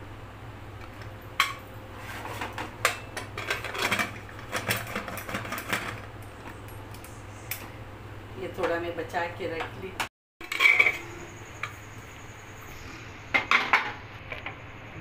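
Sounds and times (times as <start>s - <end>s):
metal lid scraping and clattering: 1.4s - 6.1s, 10.4s - 11.2s
metal lid clanking: 10.4s - 11.1s.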